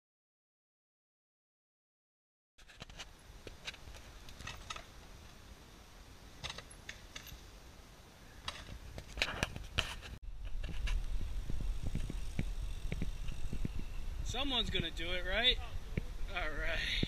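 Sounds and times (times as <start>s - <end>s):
low rumble: 10.2s - 16.5s.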